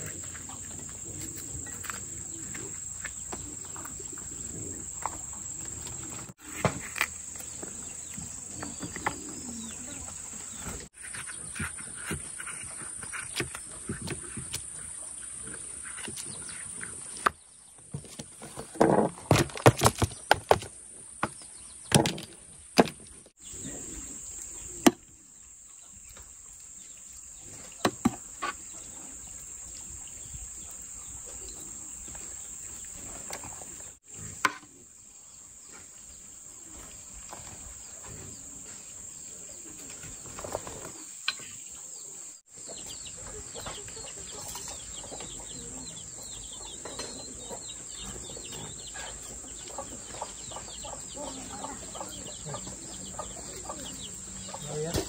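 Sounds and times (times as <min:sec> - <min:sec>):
hens clucking: 0:42.6 - 0:55.0.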